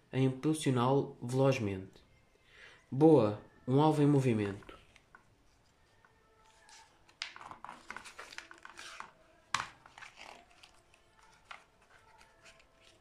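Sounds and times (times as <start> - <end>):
book pages turning: 4.4 - 13.0.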